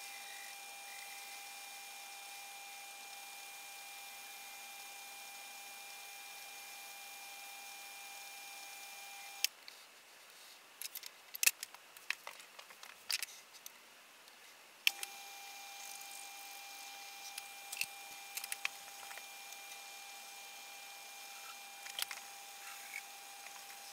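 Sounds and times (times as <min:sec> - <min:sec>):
lathe motor whine: 0:00.0 - 0:09.5, 0:14.9 - 0:23.9.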